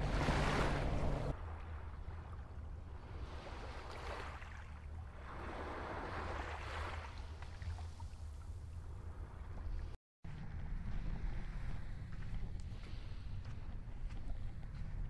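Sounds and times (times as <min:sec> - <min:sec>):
small waves lapping on shore: 0:00.0 - 0:09.9
steady low rumble: 0:08.6 - 0:15.0.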